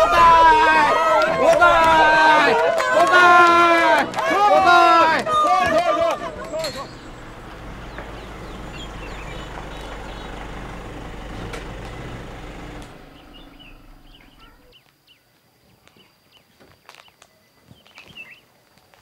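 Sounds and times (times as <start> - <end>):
car engine rumbling: 0.0 - 14.7
birds chirping: 0.0 - 14.8.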